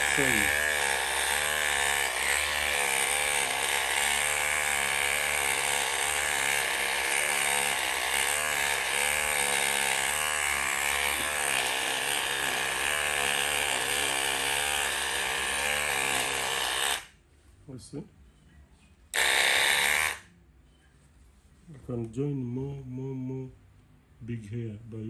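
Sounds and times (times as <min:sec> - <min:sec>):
electric hair machine motor: 0:00.0 - 0:17.2, 0:19.1 - 0:20.3.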